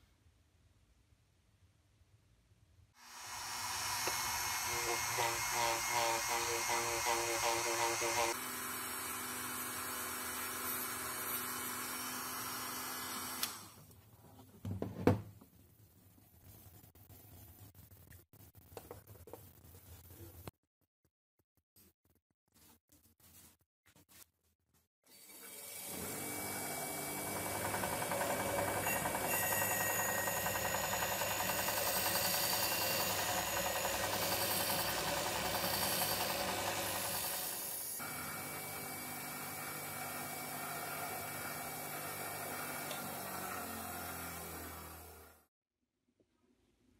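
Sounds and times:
rotary tool whining: 0:03.1 - 0:13.8, 0:26.8 - 0:38.2
bench grinder polishing metal: 0:03.2 - 0:13.4, 0:27.3 - 0:39.6.

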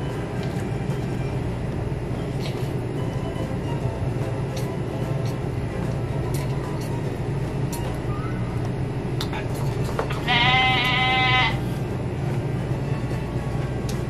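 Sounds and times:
steady low hum: 0:00.0 - 0:14.0
high bleat-like sound: 0:10.2 - 0:11.7.

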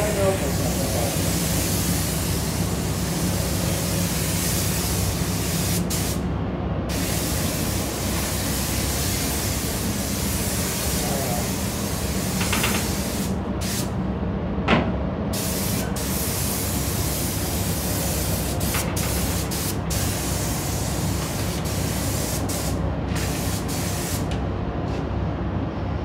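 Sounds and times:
paint spray gun hissing: 0:00.0 - 0:06.2, 0:06.9 - 0:13.9, 0:15.4 - 0:24.3
steady low hum: 0:00.0 - 0:26.0.

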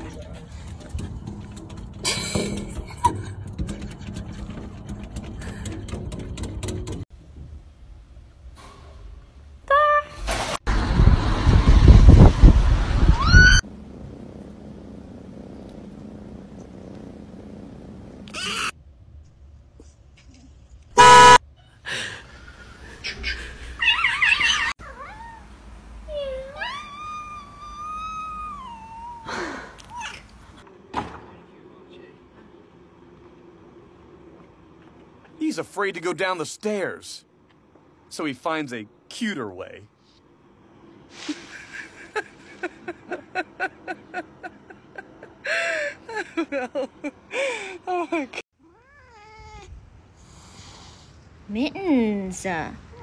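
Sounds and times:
shrill cry: 0:26.2 - 0:29.4.

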